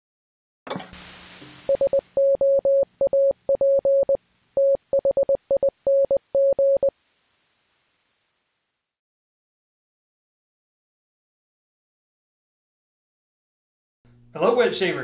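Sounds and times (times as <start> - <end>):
television static hiss: 0.8 - 9.0
morse code beeps: 1.7 - 6.9.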